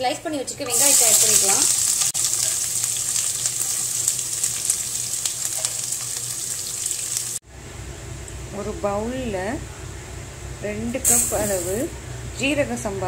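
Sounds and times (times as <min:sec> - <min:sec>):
onions sizzling in hot fat: 0:00.6 - 0:07.4, 0:11.0 - 0:11.9.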